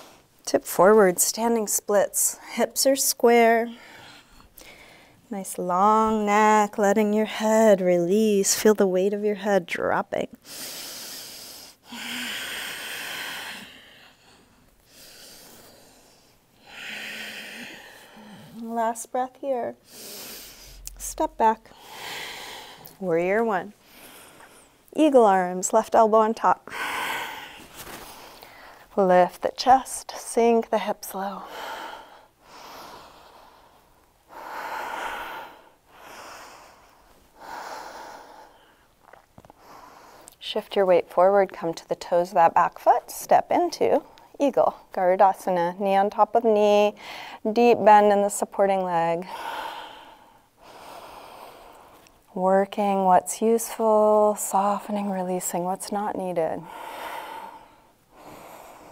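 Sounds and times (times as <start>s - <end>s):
woman breathing deeply: 3.7s - 5.3s, 10.4s - 18.6s, 19.8s - 23.0s, 23.8s - 24.9s, 26.7s - 28.9s, 31.4s - 38.9s, 47.0s - 47.4s, 49.2s - 52.0s, 56.6s - 58.9s.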